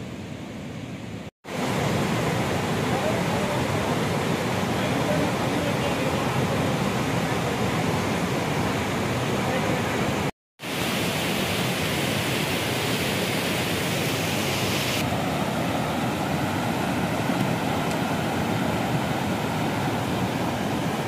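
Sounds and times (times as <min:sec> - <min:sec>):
river rushing over rocks: 0:01.5 - 0:21.0
high hiss: 0:10.6 - 0:15.1.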